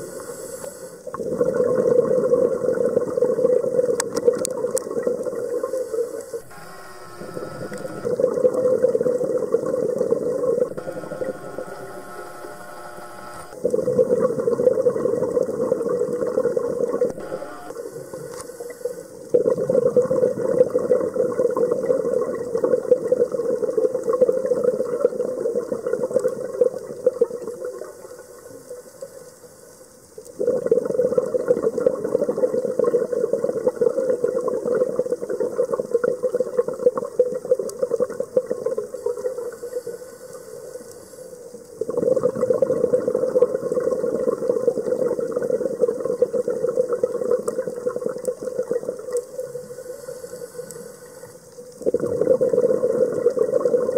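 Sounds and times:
underwater exhaled bubbles rushing: 0:01.1 - 0:05.8, 0:19.3 - 0:27.6, 0:41.8 - 0:49.6, 0:51.8 - 0:53.9.

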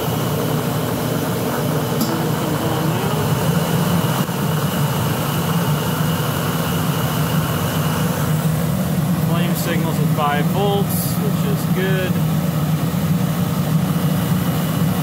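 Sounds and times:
boiler burner low rumble: 0:00.0 - 0:15.0
faint high whine: 0:02.0 - 0:04.3.

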